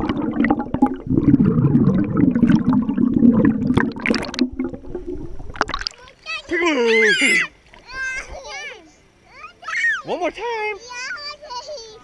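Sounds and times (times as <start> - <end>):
muffled underwater churning and bubbling: 0.0 - 6.0.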